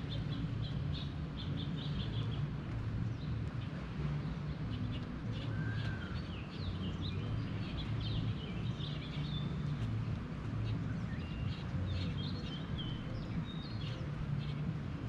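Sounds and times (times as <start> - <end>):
songbirds chirping: 0.0 - 15.0
steady low hum: 0.0 - 15.0.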